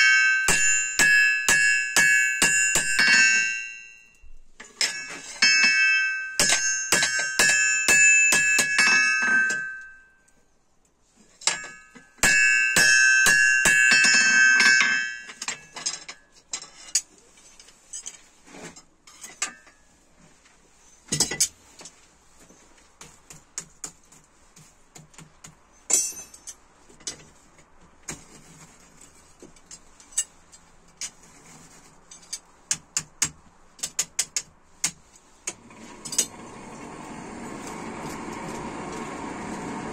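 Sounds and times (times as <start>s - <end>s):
hammer ringing on anvil: 0.0s - 10.2s, 11.5s - 15.8s
light metal taps and clinks: 25.9s - 27.4s.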